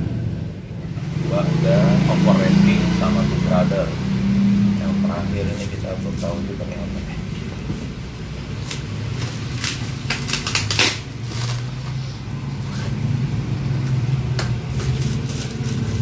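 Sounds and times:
plastic wrapping ripping: 8.6 - 13.0, 14.6 - 16.0.

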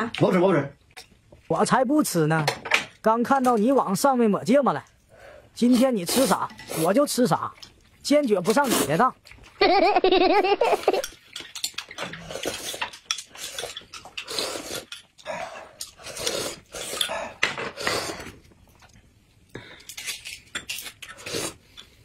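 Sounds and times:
slurping sips: 13.4 - 14.9, 15.9 - 17.1, 17.7 - 18.4, 21.1 - 21.7.

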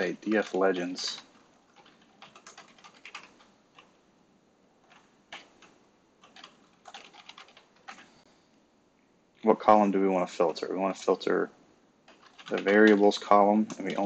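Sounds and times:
computer keyboard typing: 0.0 - 4.0, 4.8 - 8.1, 12.0 - 14.0.

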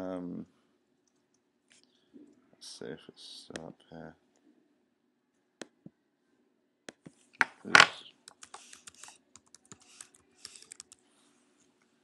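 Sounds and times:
computer keyboard typing: 8.2 - 11.0.

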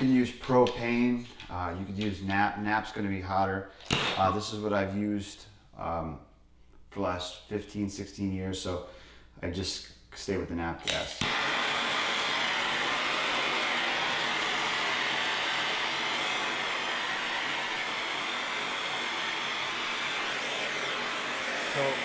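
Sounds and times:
gas torch flame hissing: 10.9 - 22.0.

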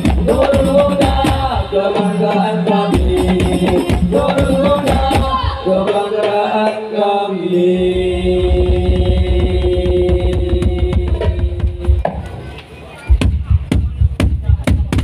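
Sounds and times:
frame drums: 0.0 - 6.8, 7.8 - 15.0
bass drum deep thuds: 8.0 - 12.2, 13.1 - 15.0.

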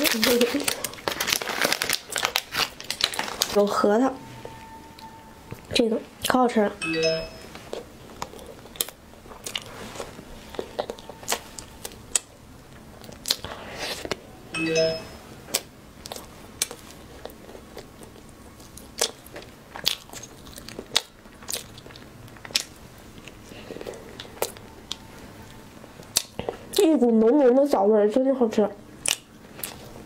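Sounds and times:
brief chime: 4.2 - 5.5, 6.8 - 7.6, 14.6 - 15.3
chewing and biting soft cake: 7.7 - 14.2, 15.5 - 27.2, 29.0 - 30.0.

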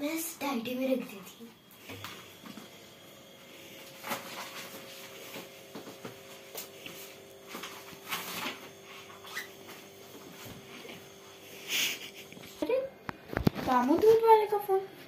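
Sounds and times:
faint steady hum: 0.0 - 15.0
paper rustling: 3.9 - 9.4.

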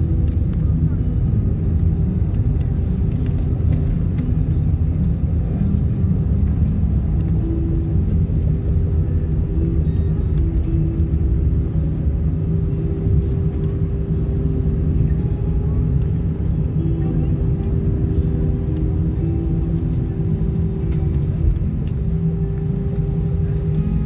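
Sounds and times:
humming tone: 0.0 - 24.0
low rumble of engines and landing gear: 0.0 - 24.0.

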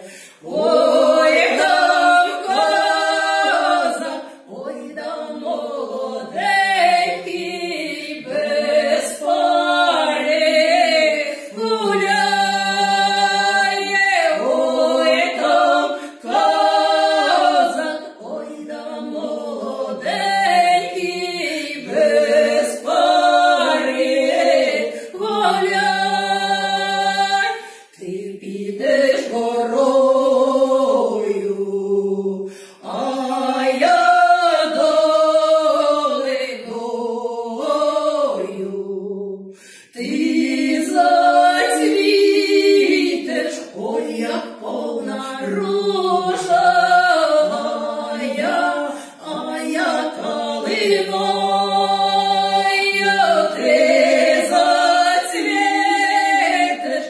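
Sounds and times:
two women singing a cappella: 0.0 - 57.0.

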